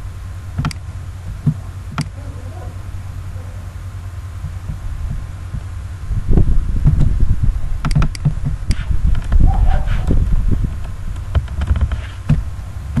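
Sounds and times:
low thumping rumble: 0.0s - 13.0s
computer mouse clicks: 7.8s - 9.4s.

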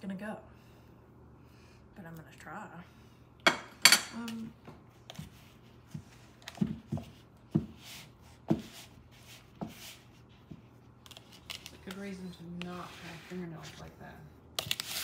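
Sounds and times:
hand mashing cookie dough: 5.0s - 11.0s
soft rustles: 5.0s - 14.2s.

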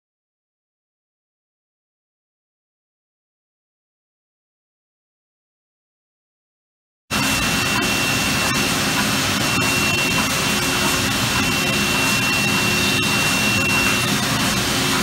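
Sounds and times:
high steady whine: 7.1s - 15.0s
industrial machine running: 7.1s - 15.0s.

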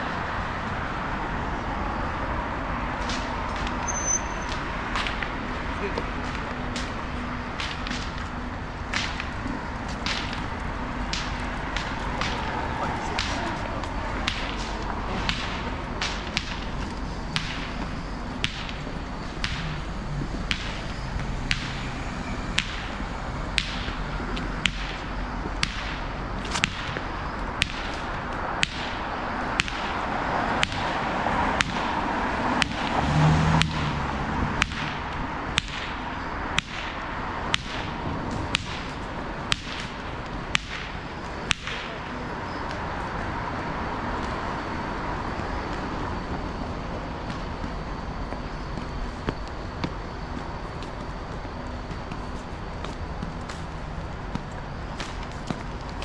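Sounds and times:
city street noise hum: 0.0s - 56.0s
footsteps clicking: 4.5s - 21.3s, 44.2s - 56.0s.

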